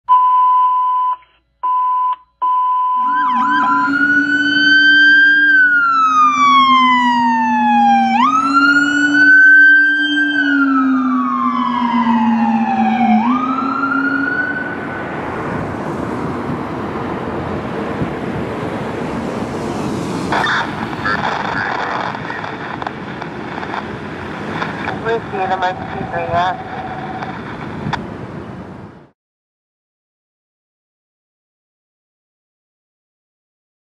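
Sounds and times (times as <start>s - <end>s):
electronic beep tone: 0.1s - 4.1s
emergency siren wailing: 2.4s - 29.1s
low siren howler tone: 2.5s - 21.4s, 22.0s - 29.1s
passing traffic rumble: 3.0s - 29.1s.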